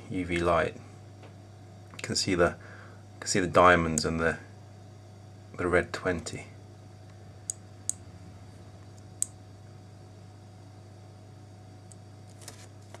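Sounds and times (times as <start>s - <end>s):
low steady hum: 0.0s - 13.0s
small switch clicks: 7.1s - 8.1s, 8.9s - 9.4s.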